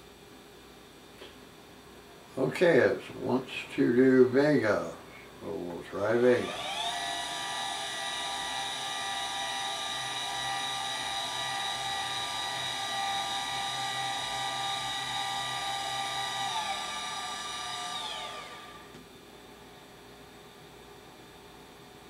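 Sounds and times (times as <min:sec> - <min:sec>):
telescope mount motors whining: 0:06.4 - 0:19.1.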